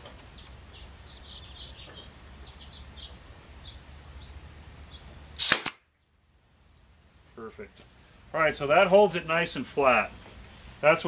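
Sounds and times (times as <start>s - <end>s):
air staple gun firing: 5.4s - 5.8s.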